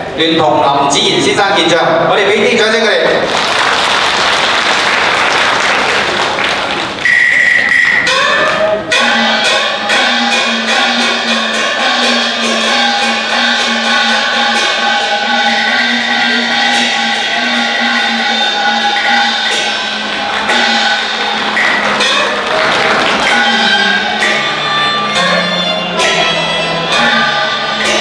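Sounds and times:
opera accompaniment band playing: 0:00.0 - 0:28.0
audience applause: 0:03.2 - 0:08.1, 0:19.5 - 0:24.8
percussion strokes: 0:04.9 - 0:28.0.

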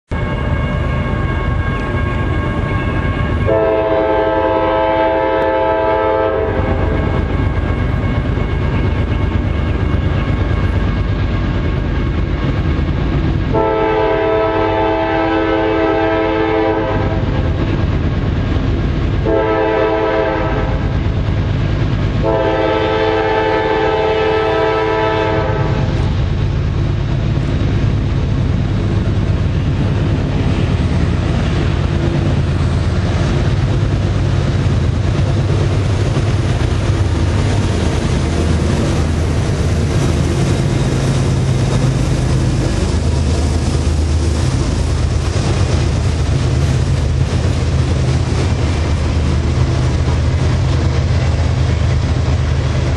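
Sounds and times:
train horn blasts: 0:00.1 - 0:09.2, 0:13.5 - 0:17.6, 0:19.2 - 0:21.0, 0:22.2 - 0:26.2
low locomotive rumble: 0:00.1 - 0:52.9.

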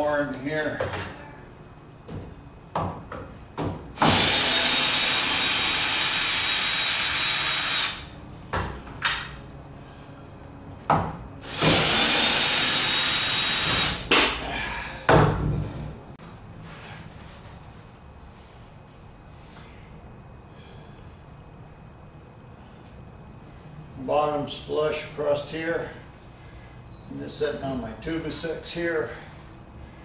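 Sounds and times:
cordless drill driving screws: 0:04.0 - 0:08.0, 0:11.4 - 0:14.0.

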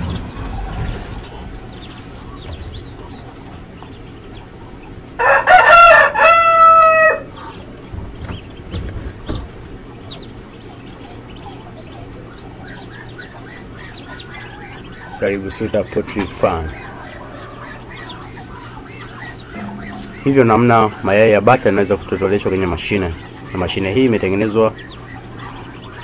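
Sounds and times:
ducklings peeping: 0:00.0 - 0:26.0
rooster crowing: 0:05.2 - 0:07.4.

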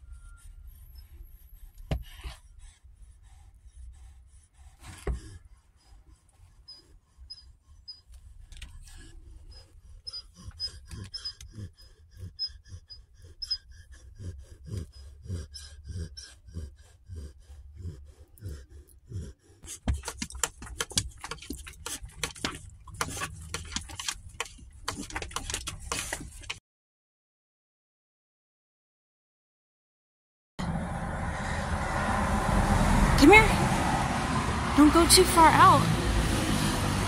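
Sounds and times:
dog breathing heavily: 0:00.0 - 0:26.6.

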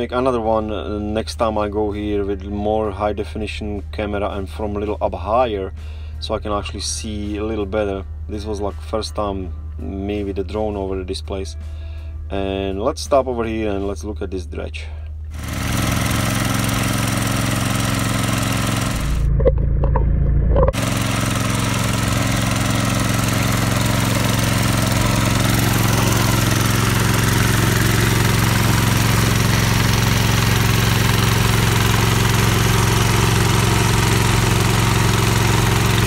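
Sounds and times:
small engine running steadily: 0:05.7 - 0:08.3, 0:11.5 - 0:12.2, 0:14.8 - 0:36.0.

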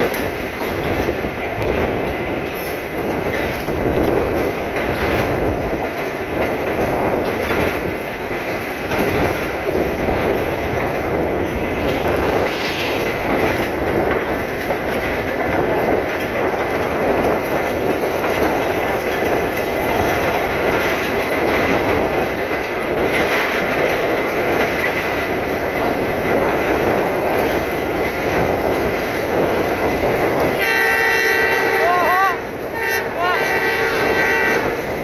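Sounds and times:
train wheels on track: 0:00.0 - 0:35.0.

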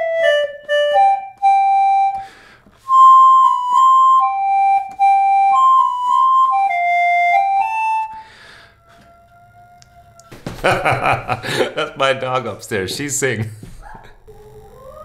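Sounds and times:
reed instrument melody: 0:00.0 - 0:09.2
person breathing: 0:02.2 - 0:02.9, 0:08.1 - 0:09.2, 0:11.3 - 0:11.8.

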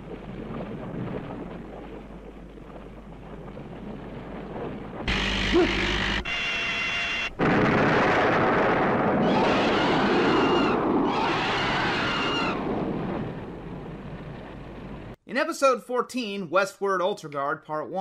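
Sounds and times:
loud explosion sound effect: 0:07.4 - 0:14.6.

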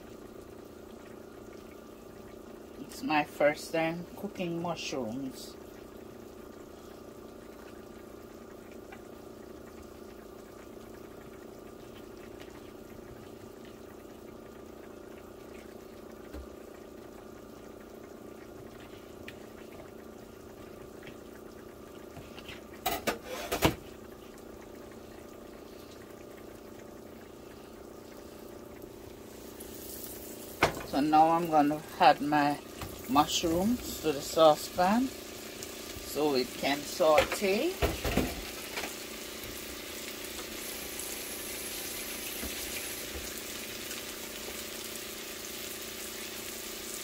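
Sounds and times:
butter sizzling in a frying pan: 0:00.0 - 0:25.0, 0:28.0 - 0:47.0.

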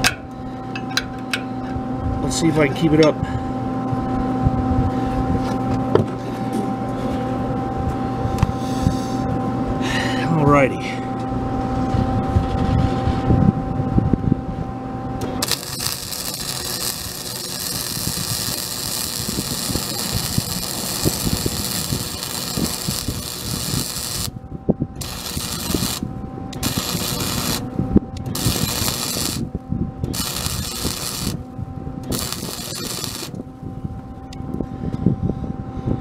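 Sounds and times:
faint steady hum: 0:00.0 - 0:36.0
welding arc crackling hiss: 0:15.2 - 0:24.3, 0:25.0 - 0:27.7, 0:28.3 - 0:29.5, 0:30.1 - 0:31.4, 0:32.1 - 0:33.4.

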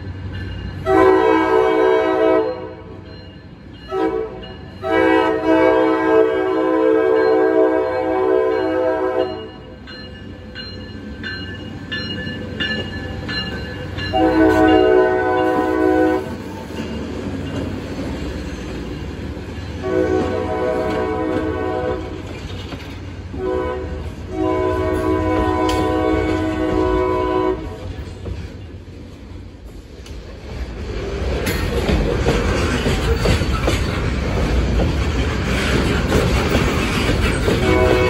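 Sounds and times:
rumble of train rolling: 0:00.0 - 0:38.0
locomotive horn blasts: 0:00.8 - 0:02.9, 0:03.9 - 0:09.6, 0:14.1 - 0:16.4, 0:19.8 - 0:22.2, 0:23.3 - 0:27.9, 0:37.6 - 0:38.0
bell ringing: 0:09.3 - 0:14.9.

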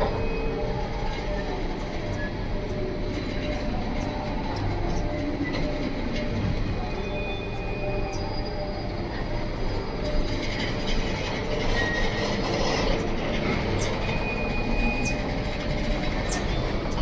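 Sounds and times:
train wheels rumbling on rail: 0:00.0 - 0:17.0
high-pitched wheel squeals: 0:05.0 - 0:17.0.

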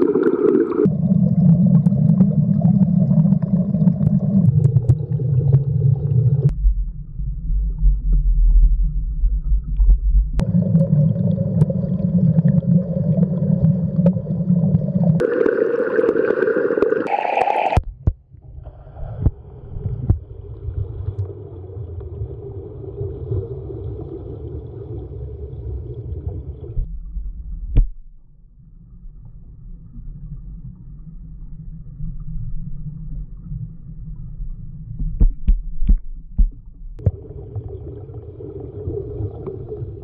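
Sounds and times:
water gurgling: 0:00.0 - 0:06.6, 0:07.9 - 0:18.0, 0:29.1 - 0:40.0
muffled underwater rumble: 0:00.0 - 0:40.0.

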